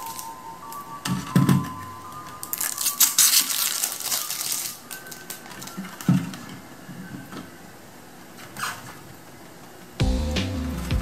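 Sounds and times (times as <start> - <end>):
plastic film crackling: 0.0 - 7.6.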